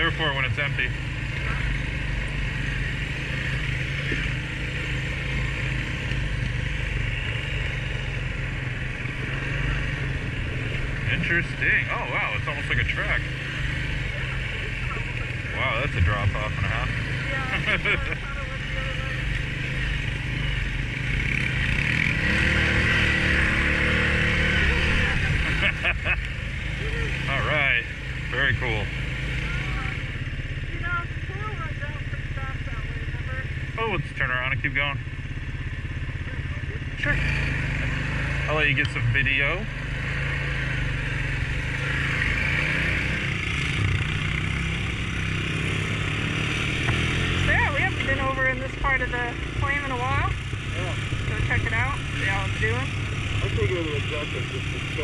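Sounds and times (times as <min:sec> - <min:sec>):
atv engine running: 0:00.0 - 0:55.0.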